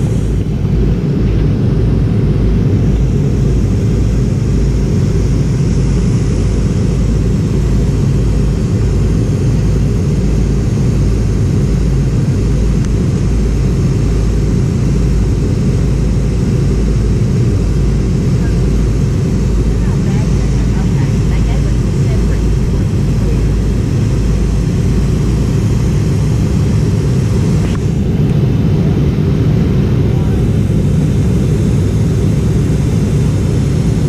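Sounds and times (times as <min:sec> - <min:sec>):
airliner cabin rumble: 0:00.0 - 0:34.0.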